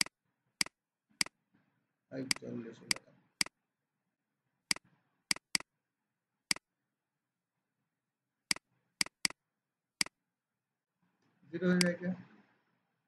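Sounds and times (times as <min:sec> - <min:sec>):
computer mouse clicking: 0:00.0 - 0:01.4, 0:04.7 - 0:05.7, 0:08.5 - 0:09.4.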